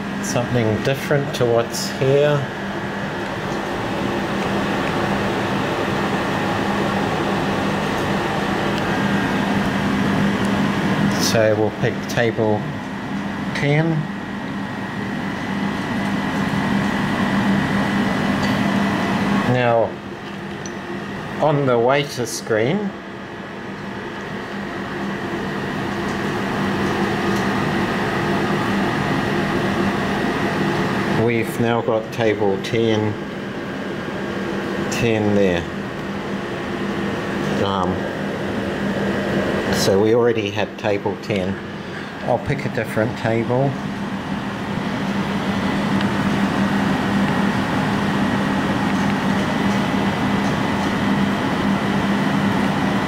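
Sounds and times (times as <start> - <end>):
mechanical hum with held tones: 0.0 - 53.0.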